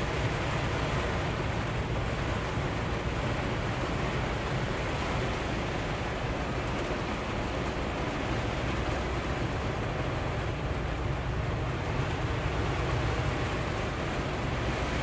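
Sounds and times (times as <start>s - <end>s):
diesel engine rumbling: 0.0s - 15.0s
heavy rain on a truck cab: 0.0s - 15.0s.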